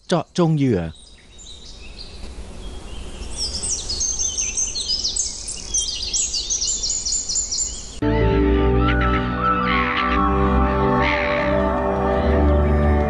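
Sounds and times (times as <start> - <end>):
birds chirping in chorus: 0.0 - 8.0
music: 8.0 - 13.0.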